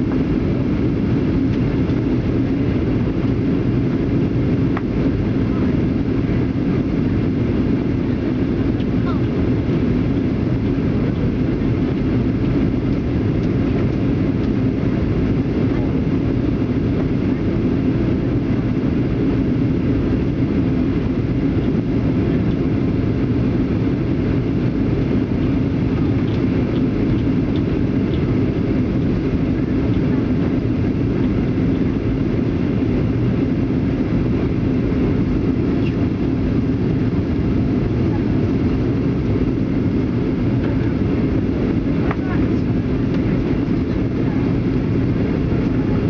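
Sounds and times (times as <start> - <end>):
jet engine rumble in cabin: 0.0 - 46.0.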